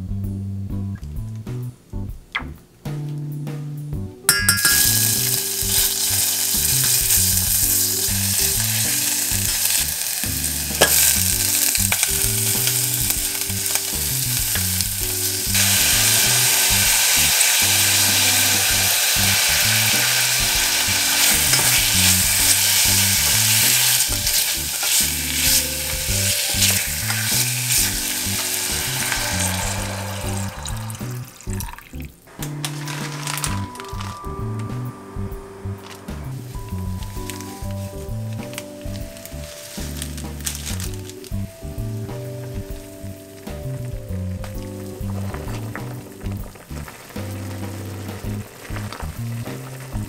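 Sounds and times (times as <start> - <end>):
food sizzling in hot oil: 4.3 - 50.0
wooden spoon stirring: 32.5 - 34.2.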